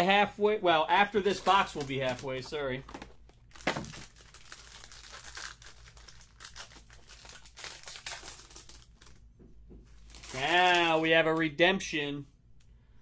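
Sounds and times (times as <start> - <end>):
foil wrapper tearing and crinkling: 1.3 - 9.2, 10.0 - 11.0.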